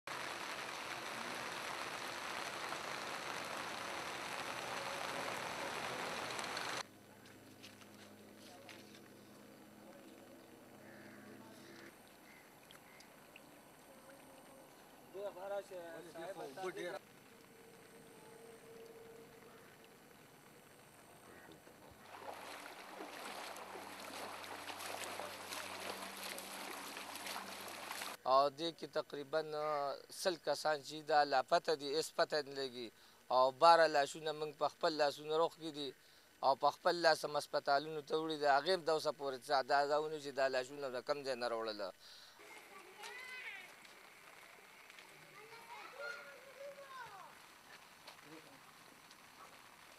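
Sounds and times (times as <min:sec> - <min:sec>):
rain falling onto water: 0:00.1 - 0:06.8, 0:22.3 - 0:28.2
faint low hum: 0:00.4 - 0:49.9
water splashing and sloshing: 0:21.6 - 0:28.2.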